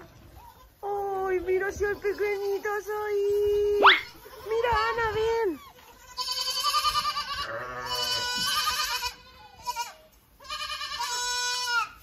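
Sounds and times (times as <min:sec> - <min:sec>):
goats bleating: 0:04.0 - 0:12.0.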